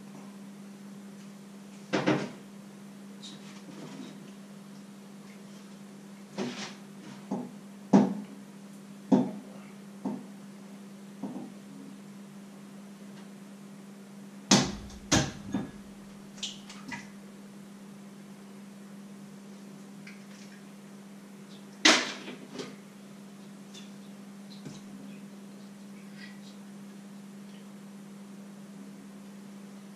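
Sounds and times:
low hum: 14.5 - 16.4.

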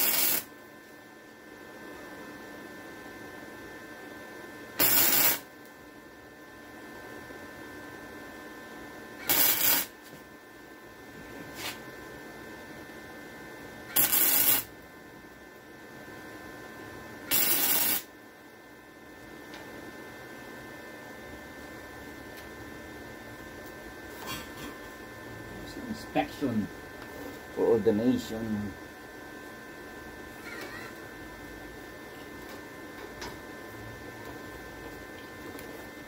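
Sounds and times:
welding arc crackle: 0.0 - 0.5, 4.8 - 5.5, 9.2 - 10.1, 13.9 - 14.8, 17.3 - 18.1
welder hum: 0.0 - 2.1, 4.6 - 5.9, 9.2 - 10.2, 13.8 - 18.2.

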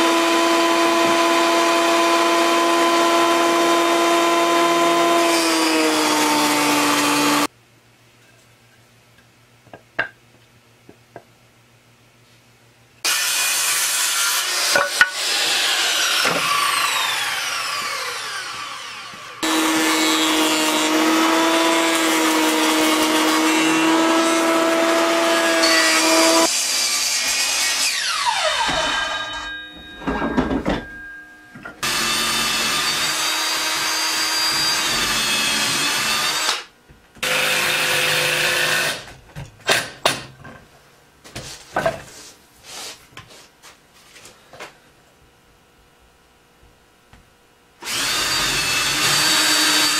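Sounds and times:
power tool motors whining: 15.2 - 30.0, 31.8 - 36.6, 47.8 - 49.9.

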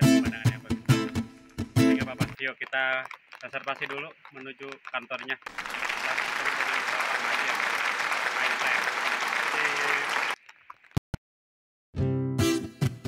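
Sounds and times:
strummed guitar music: 0.0 - 2.3
crowd applauding and cheering: 0.0 - 11.0.

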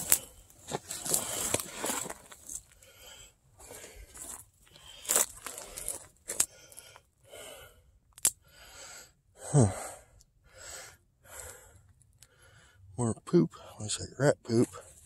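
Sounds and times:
heavy rhythmic breathing: 0.0 - 14.1
person grunting: 9.4 - 9.9.

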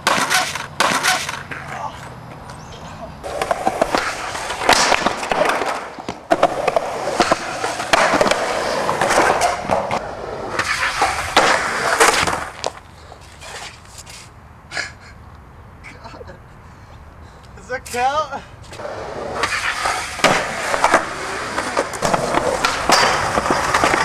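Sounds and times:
skateboard clacking on ground: 0.0 - 14.0, 18.7 - 24.0
skateboard wheels rolling on concrete: 0.0 - 24.0.

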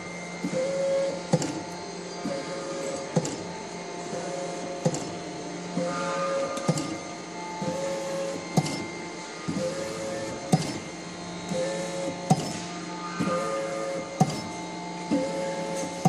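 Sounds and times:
steady motor hum: 0.0 - 16.0
printer sharp clack: 1.3 - 1.6, 4.8 - 5.2, 5.8 - 7.0, 7.6 - 8.9, 9.5 - 10.9, 11.5 - 16.0.

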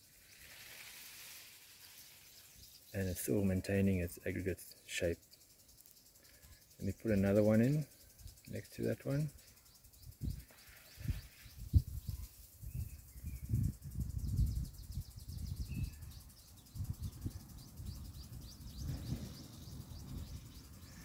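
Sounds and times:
faint bird chirps: 0.0 - 21.0
high insect trill: 0.0 - 21.0
wind buffeting microphone: 10.0 - 21.0.

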